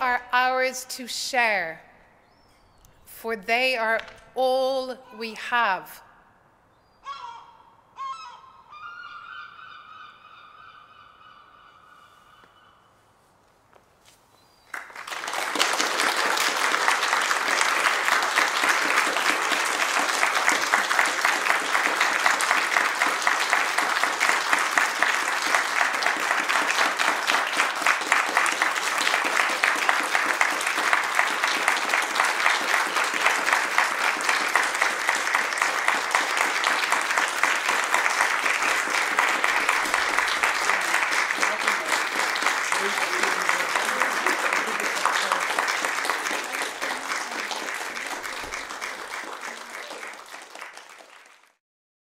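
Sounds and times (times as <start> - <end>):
audience applauding: 14.7 - 51.6.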